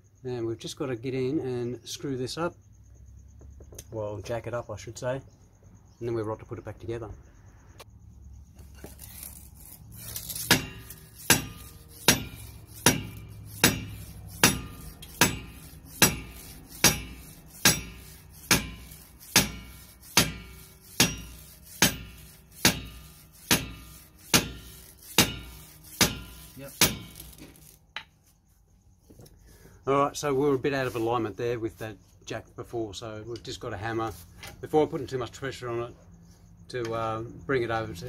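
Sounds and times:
rubber mallet striking steel: 10.3s - 27.8s.

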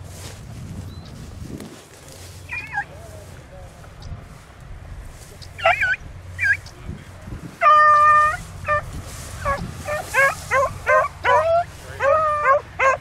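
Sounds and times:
hound baying: 2.5s - 2.9s, 5.6s - 6.6s, 7.6s - 13.0s
hounds yelping: 2.5s - 2.9s, 5.6s - 6.7s, 7.6s - 13.0s.

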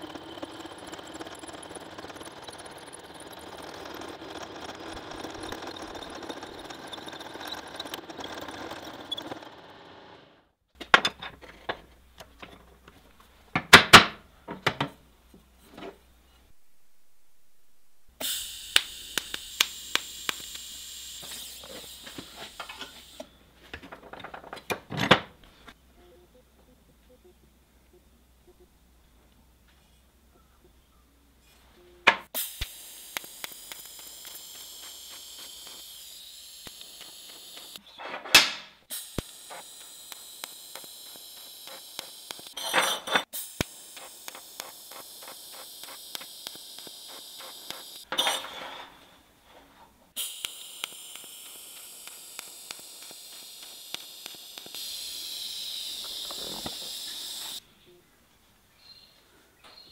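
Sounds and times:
welding arc hissing: 18.1s - 23.4s, 32.3s - 37.8s, 38.8s - 49.2s, 50.1s - 57.6s
arc crackles: 32.6s - 37.8s, 39.0s - 42.6s, 43.5s - 48.1s, 50.2s - 57.6s.

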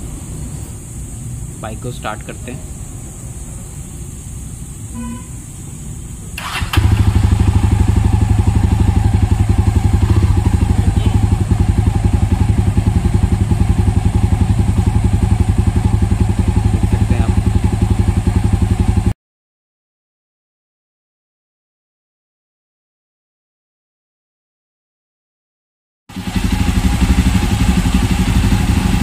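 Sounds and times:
electric starter cranking: 6.4s - 7.4s
motorcycle engine idling: 6.4s - 19.1s, 26.1s - 29.0s.

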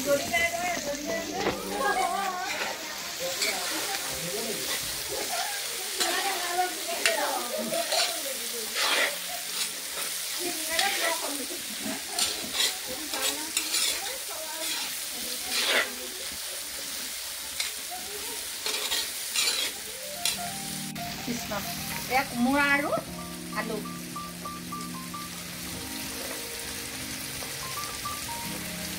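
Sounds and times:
vegetables sizzling in a wok: 0.0s - 28.9s
metal spatula scraping a pan: 2.0s - 16.1s, 17.5s - 20.5s.

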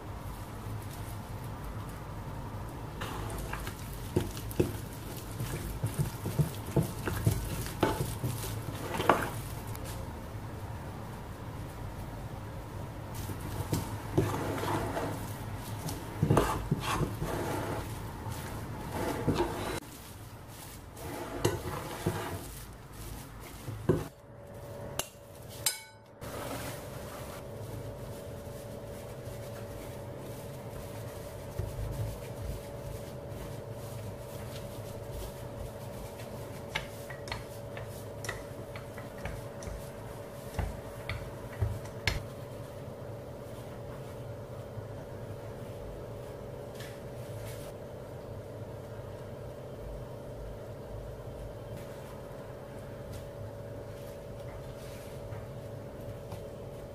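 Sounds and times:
metal spoon stirring dough: 2.9s - 10.0s, 13.2s - 19.9s, 20.8s - 24.1s, 24.9s - 42.4s.

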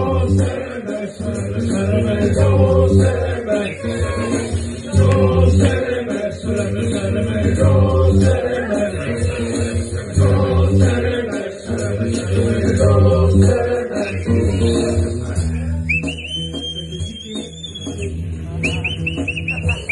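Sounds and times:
chanted vocals: 0.0s - 15.4s
bass-heavy beat: 0.0s - 19.9s.

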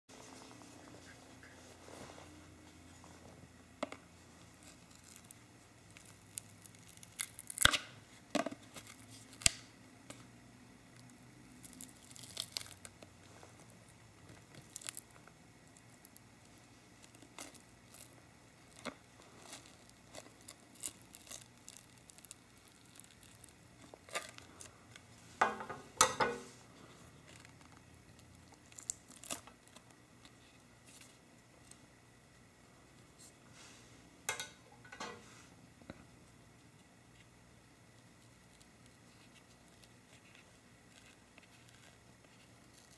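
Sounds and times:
adhesive tearing: 4.7s - 7.9s, 11.6s - 13.0s.

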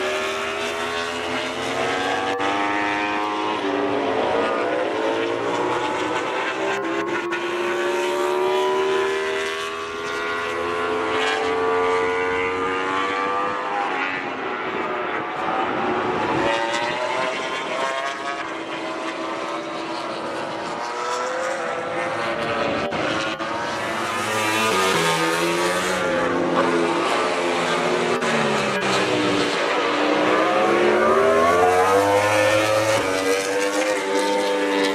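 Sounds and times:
race bike engines revving: 15.4s - 34.9s.

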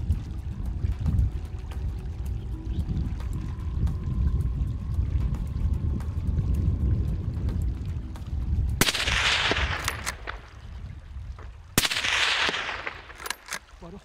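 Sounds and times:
rifle shots with rolling echo: 8.8s - 10.5s, 11.8s - 13.6s.

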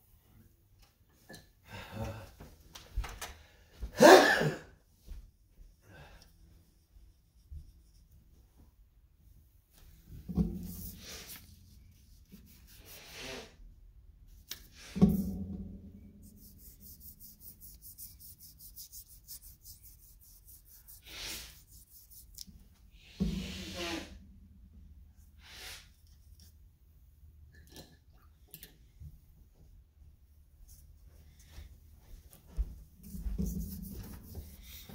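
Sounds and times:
rubbing and scraping on paper: 10.4s - 13.6s, 16.2s - 23.9s, 33.0s - 34.9s
fast fine scratching: 10.6s - 13.6s, 16.2s - 22.4s.

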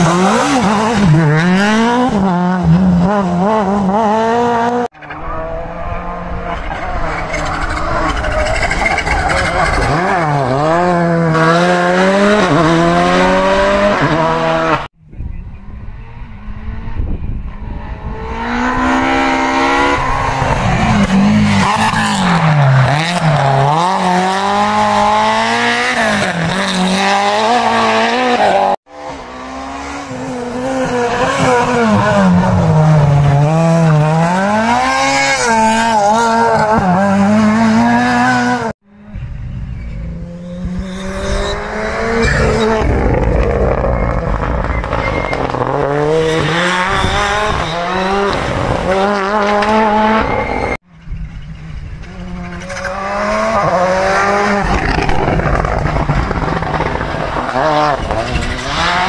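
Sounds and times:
rally car engines revving: 0.0s - 59.0s.

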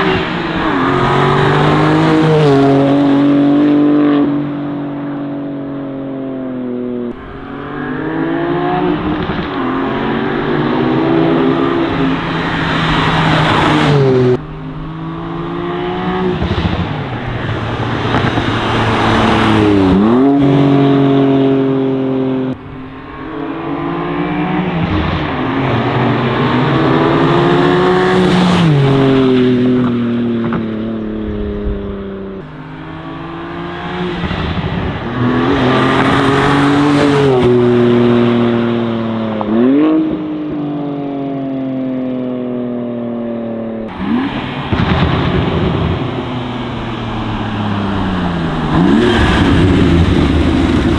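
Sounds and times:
car engine accelerating past: 43.9s - 50.9s.

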